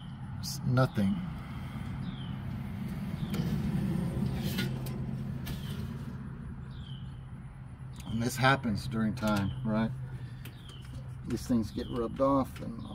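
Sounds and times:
bird chirping: 0.8s - 3.7s, 6.6s - 12.9s.

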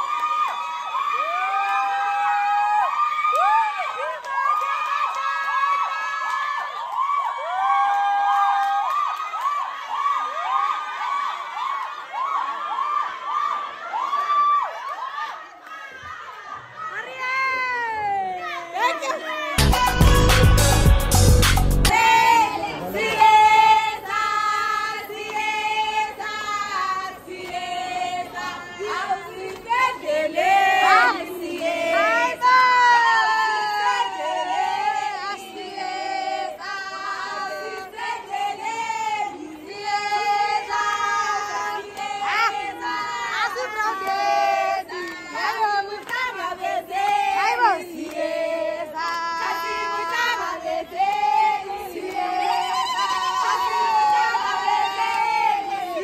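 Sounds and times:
women singing: 17.0s - 56.0s.

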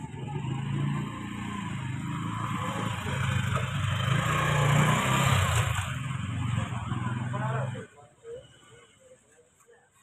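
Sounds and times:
motorcycle engine running: 0.0s - 7.7s.

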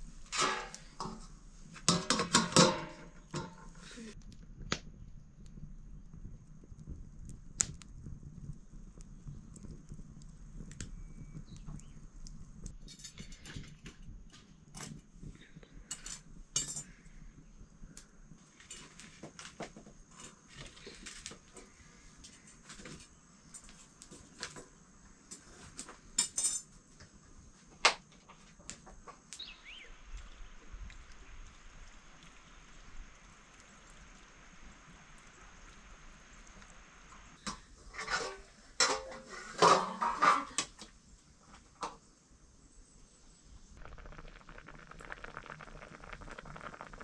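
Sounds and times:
pots and utensils clinking: 0.3s - 3.8s, 15.9s - 17.0s, 37.4s - 40.8s.

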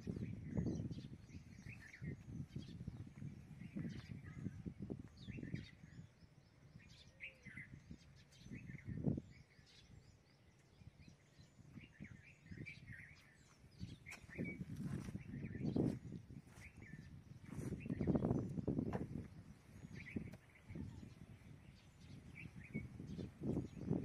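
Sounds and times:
small birds chirping and trilling: 0.0s - 24.0s
low rumbles and thumps: 17.4s - 20.4s.

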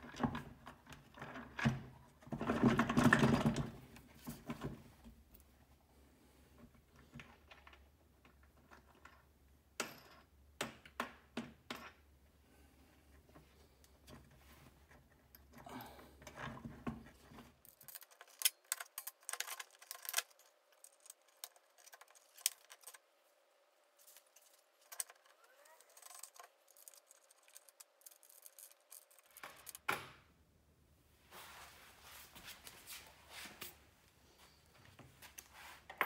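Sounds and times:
light clicks and metallic rattles: 24.0s - 30.0s.

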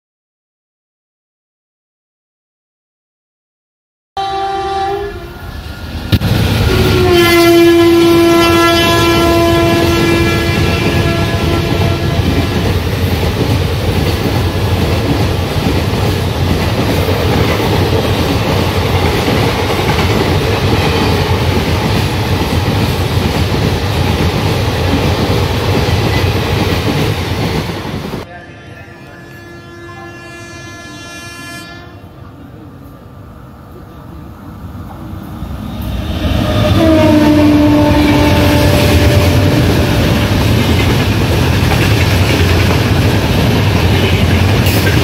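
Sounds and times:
locomotive horn blast: 4.2s - 5.5s, 6.6s - 12.7s, 28.2s - 32.1s, 36.2s - 40.4s
train wheels rumbling on rails: 5.4s - 28.3s, 34.5s - 45.0s.

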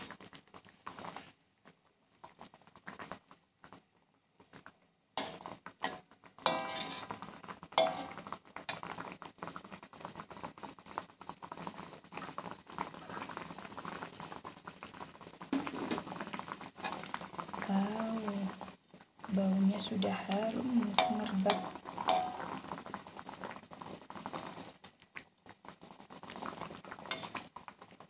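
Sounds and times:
broth bubbling in a wok: 0.0s - 28.0s
metal spatula clinking on wok: 6.5s - 6.9s, 7.8s - 8.1s, 21.0s - 22.4s.

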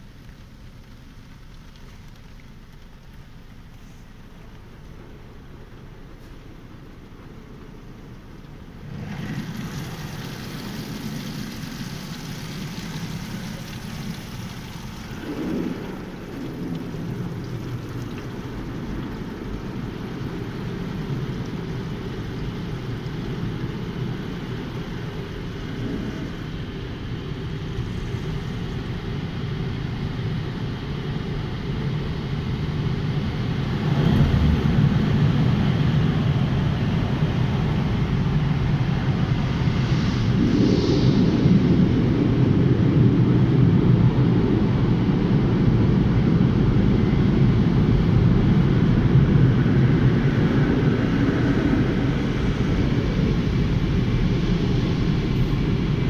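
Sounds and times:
car wash machinery rushing: 0.0s - 56.0s.

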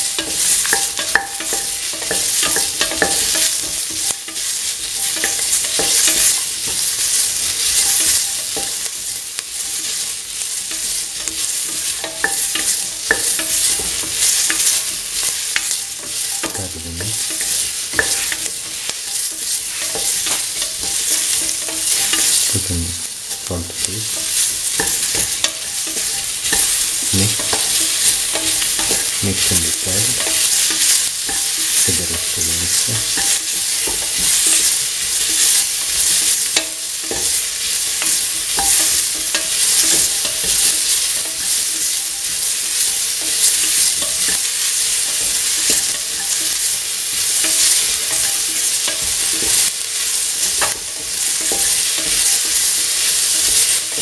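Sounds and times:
vegetables sizzling in oil: 0.0s - 54.0s
spatula scraping metal pan: 9.8s - 41.4s.

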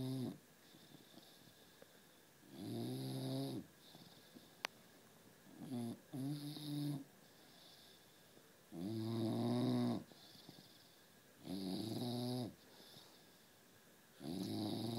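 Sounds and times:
dog snoring: 0.0s - 1.6s, 2.4s - 4.4s, 5.5s - 8.0s, 8.7s - 13.3s, 14.2s - 14.9s.

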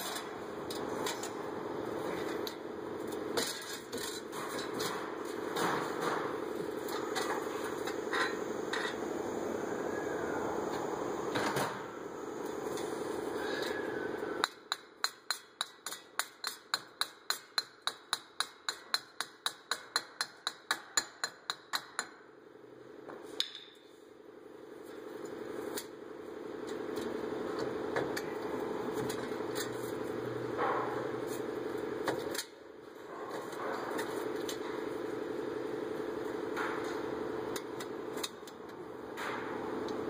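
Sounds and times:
steady background hum: 0.0s - 40.0s
hammer tapping metal: 14.4s - 22.2s.

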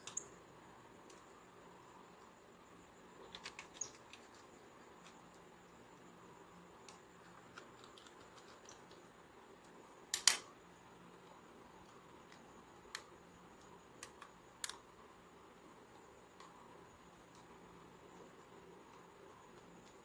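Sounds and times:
clicks of laptop parts: 10.1s - 10.5s.

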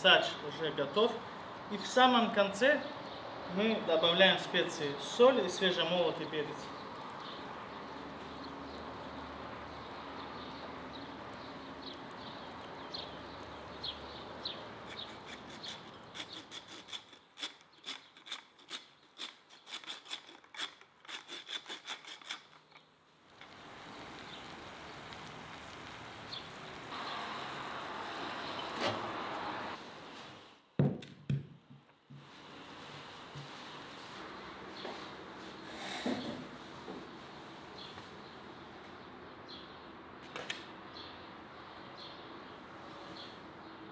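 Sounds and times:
sharp irregular crackles: 14.8s - 27.0s
food sizzling in pan: 23.4s - 28.4s.

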